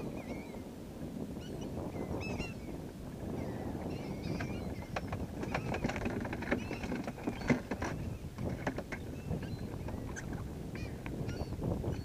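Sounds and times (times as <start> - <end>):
wind: 0.0 - 12.0
gulls calling: 1.4 - 12.0
water lapping at boat hull: 2.4 - 11.4.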